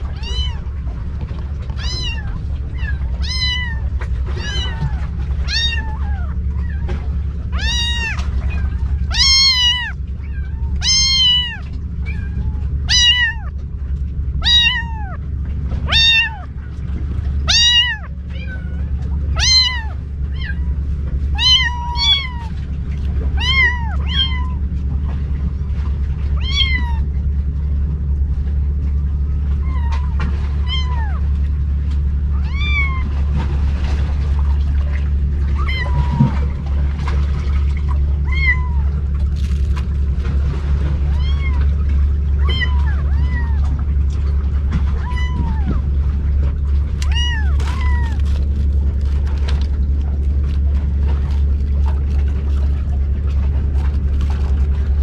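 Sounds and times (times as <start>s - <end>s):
kittens mewing: 0.0s - 0.7s, 1.7s - 13.6s, 14.4s - 16.6s, 17.4s - 22.6s, 23.3s - 24.7s, 26.3s - 27.1s, 29.6s - 31.3s, 32.2s - 33.2s, 35.3s - 36.6s, 38.2s - 39.6s, 41.0s - 43.9s, 44.9s - 45.9s, 46.9s - 51.2s
low rumble: 0.0s - 55.0s.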